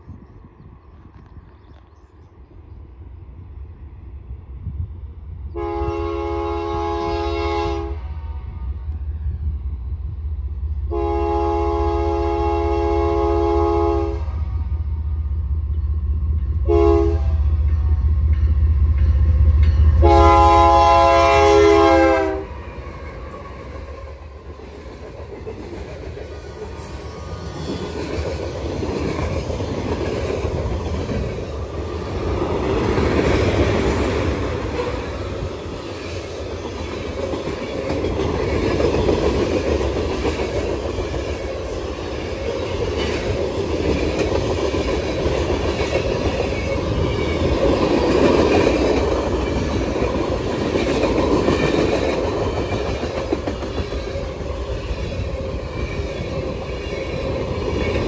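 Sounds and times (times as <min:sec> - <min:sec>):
train horn chord: 0:05.5 - 0:09.2, 0:10.9 - 0:15.2, 0:16.6 - 0:18.0, 0:19.9 - 0:22.6
train wheel clatter: 0:22.8 - 0:58.0.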